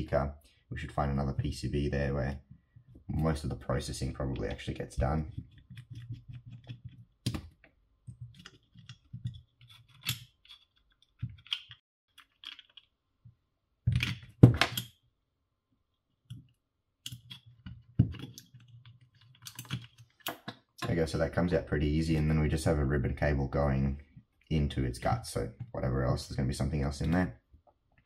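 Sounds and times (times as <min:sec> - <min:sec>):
plastic parts clicking and tapping: 0:05.3 - 0:12.9, 0:16.3 - 0:21.0.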